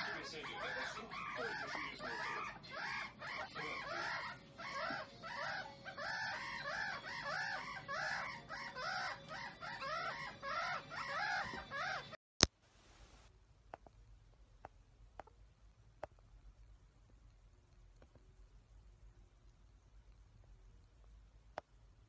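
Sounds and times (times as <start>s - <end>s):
meerkats chirping: 0.0s - 12.2s.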